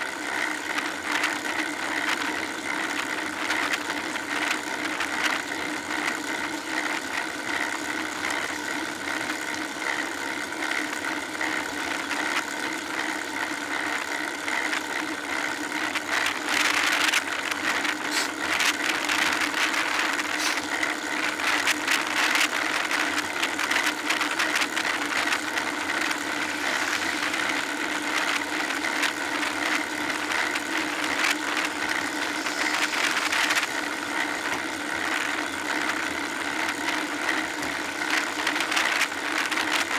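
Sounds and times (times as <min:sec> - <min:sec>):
steady hum: 0:00.0 - 0:39.9
mechanical rattle: 0:13.7 - 0:39.9.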